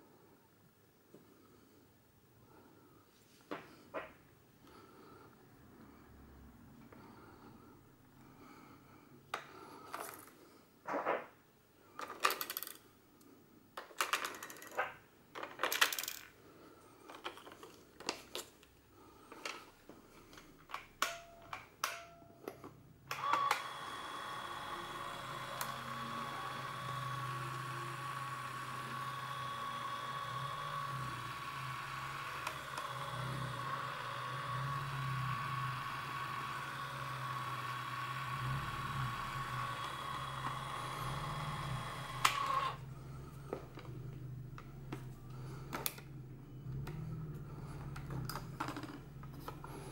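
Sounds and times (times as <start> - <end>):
camera motor whirring: 23.1 - 42.8.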